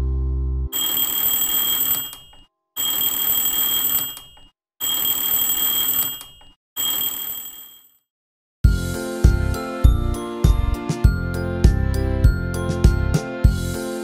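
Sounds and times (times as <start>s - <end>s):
alarm clock bell ringing: 0.8s - 7.9s.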